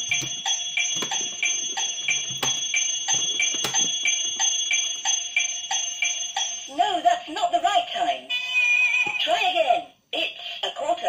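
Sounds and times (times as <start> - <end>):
plastic clock hands clicking: 0.0 - 5.2
electronic ticking toy clock: 0.0 - 6.7.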